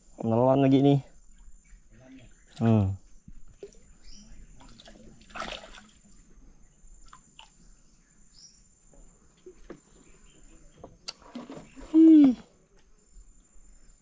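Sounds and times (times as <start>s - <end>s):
water splashing and dripping: 4.6s - 6.2s.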